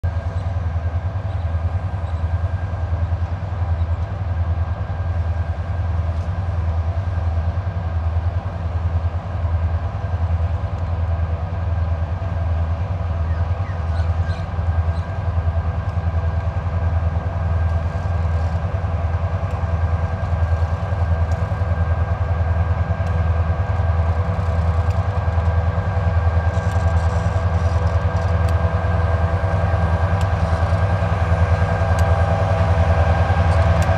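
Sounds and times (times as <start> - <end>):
low locomotive engine throb: 0.0 - 33.9
steady whine: 14.5 - 33.9.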